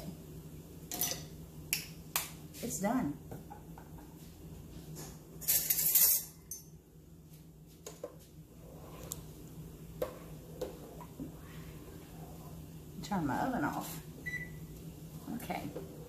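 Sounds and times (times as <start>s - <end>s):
metal ladle scraping stockpot: 5.4s - 6.4s.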